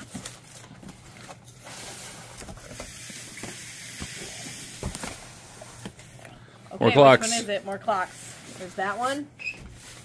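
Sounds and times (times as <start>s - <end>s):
cardboard rustling and scraping: 7.3s - 10.0s.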